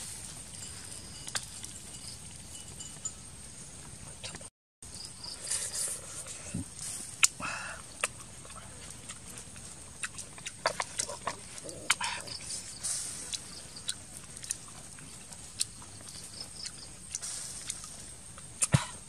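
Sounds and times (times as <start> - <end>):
soft mouth noises: 5.4 - 19.0.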